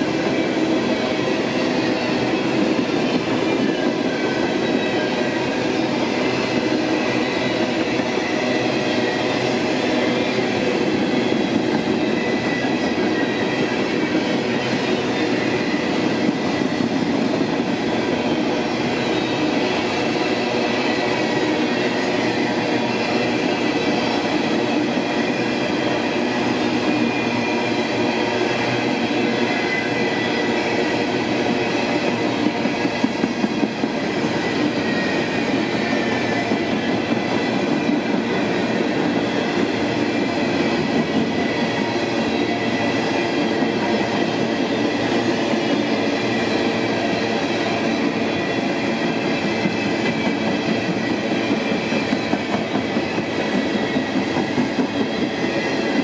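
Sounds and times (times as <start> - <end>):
faint high wheel squeal: 0.0 - 56.0
steel wheels rumbling on rail: 0.0 - 56.0.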